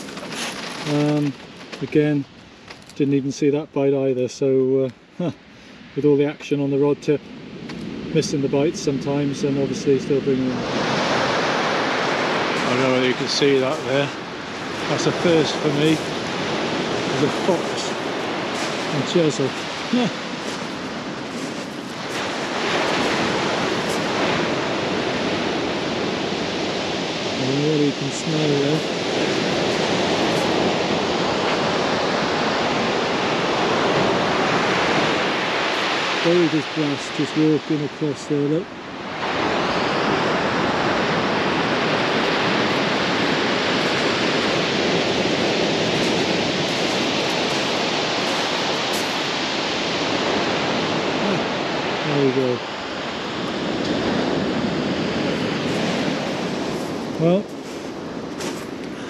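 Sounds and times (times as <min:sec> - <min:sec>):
surf breaking on shingle: 0:00.0 - 0:02.0, 0:12.4 - 0:25.2
surf breaking on shingle beach: 0:00.0 - 0:03.0, 0:09.4 - 0:59.0.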